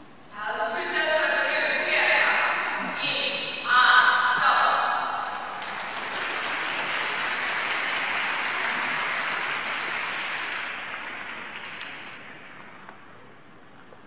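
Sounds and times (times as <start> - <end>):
audience applauding: 5.4 - 12.9.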